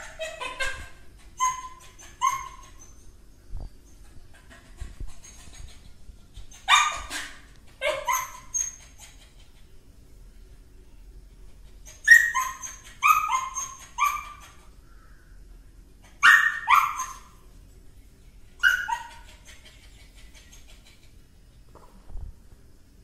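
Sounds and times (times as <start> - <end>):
small dog barking: 6.6 - 8.6, 16.2 - 17.4.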